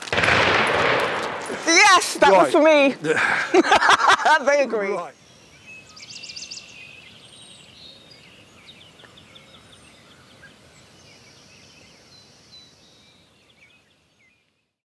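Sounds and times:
small birds chirping and trilling: 1.7s - 14.8s.

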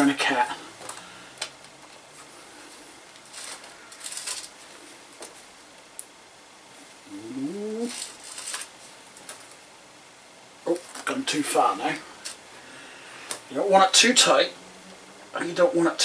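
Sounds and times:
small metal clinks and scrapes: 3.3s - 4.6s.

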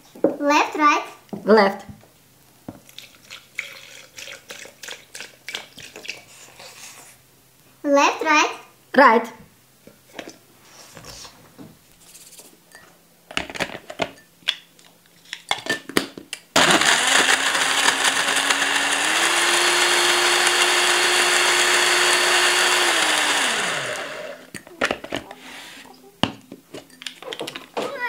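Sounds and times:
blender motor running: 16.6s - 24.5s.

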